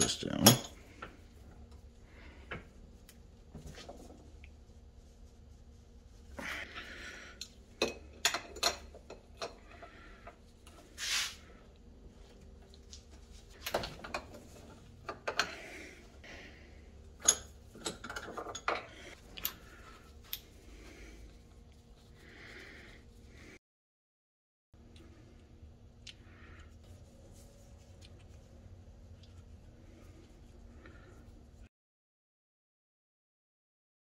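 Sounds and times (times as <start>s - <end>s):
metal tools clanking on vise: 0.0s - 0.8s, 17.2s - 19.6s.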